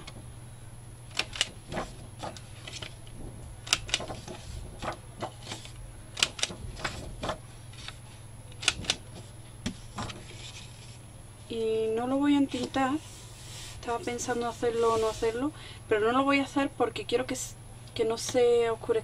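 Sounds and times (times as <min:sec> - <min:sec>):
paper handling clicks: 0:01.1 - 0:10.8
corner punch clicking: 0:08.6 - 0:09.0.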